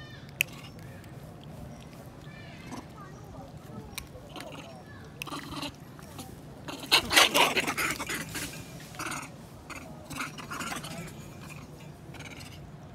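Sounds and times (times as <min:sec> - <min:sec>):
monkeys squeaking: 0:03.9 - 0:12.6.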